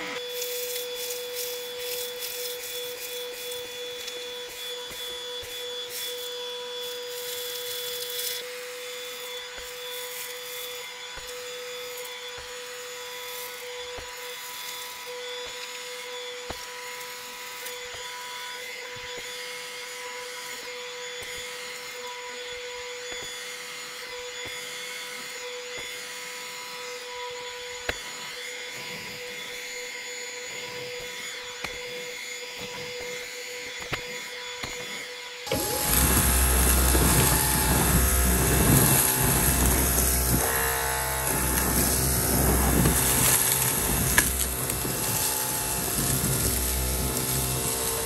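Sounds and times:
vacuum cleaner high whine: 0:00.0 - 0:48.0
grit ticking up nozzle: 0:35.5 - 0:48.0
stick vacuum deep rumble: 0:35.5 - 0:48.0.

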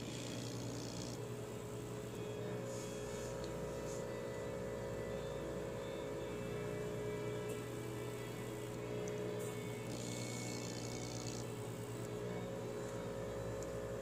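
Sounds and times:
small vacuum pump humming: 0:00.0 - 0:14.0.

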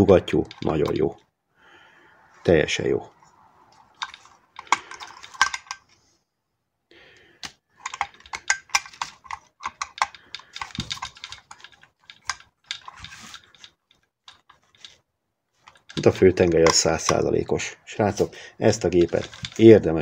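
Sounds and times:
metal engine parts clicking and tapping: 0:04.0 - 0:05.8, 0:07.8 - 0:15.0.

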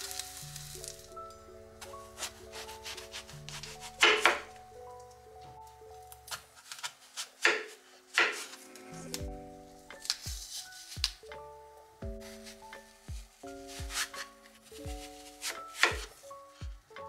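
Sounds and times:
soft background music: 0:00.0 - 0:17.0
knife crunching through apple: 0:01.8 - 0:04.4, 0:06.1 - 0:08.7, 0:09.9 - 0:11.3.

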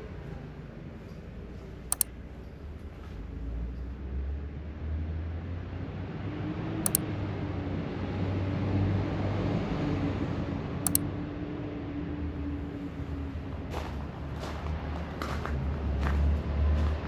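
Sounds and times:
city background hum: 0:00.0 - 0:17.0
sharp double clicks: 0:01.9 - 0:02.2, 0:06.9 - 0:07.1, 0:10.8 - 0:11.1.

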